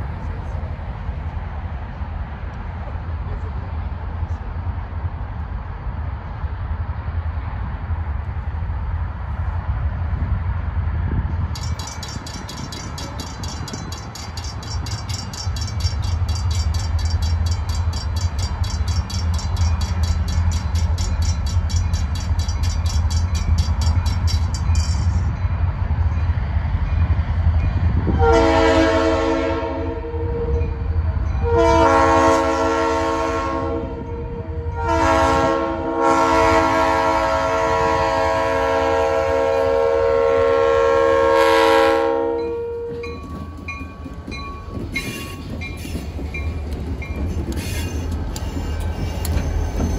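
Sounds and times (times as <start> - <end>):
low rumble of locomotives: 0.0 - 49.9
crossing bell ringing rapidly: 11.5 - 26.3, 42.4 - 49.9
locomotive air horn blasts: 28.1 - 30.6, 31.4 - 43.2.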